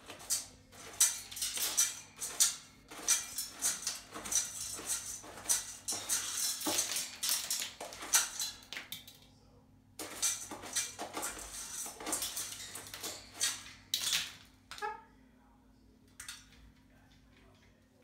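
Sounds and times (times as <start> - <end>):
metal food bowl rattling: 0.0 - 9.3, 10.0 - 15.0.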